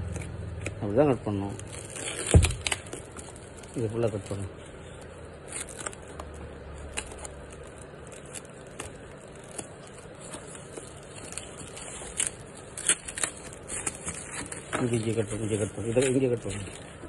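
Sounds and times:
plastic crinkling: 0.0s - 17.0s
scissors snipping plastic: 5.4s - 16.8s.

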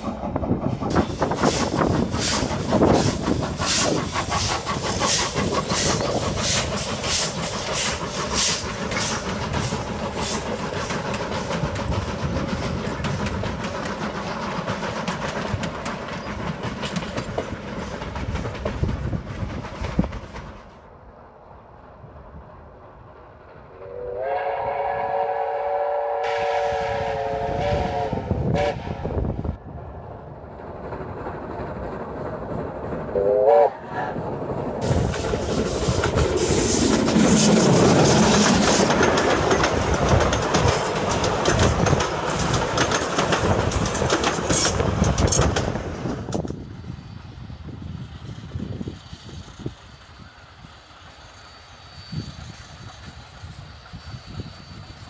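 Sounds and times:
wheels clicking over rail joints: 0.0s - 20.8s, 34.4s - 46.6s
train rumbling past: 0.0s - 55.0s
steam locomotive whistle: 23.8s - 29.3s, 33.2s - 34.2s.

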